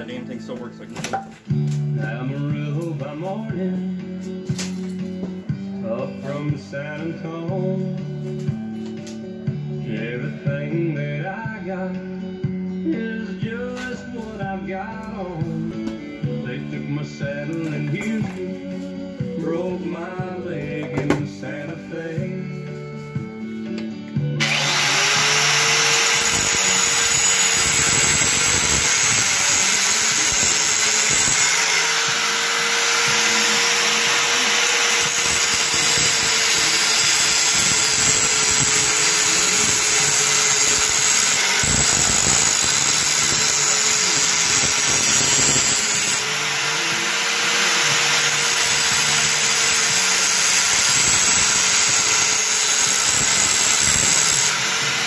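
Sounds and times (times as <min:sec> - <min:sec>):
angle grinder grinding steel: 0:24.4 - 0:55.0.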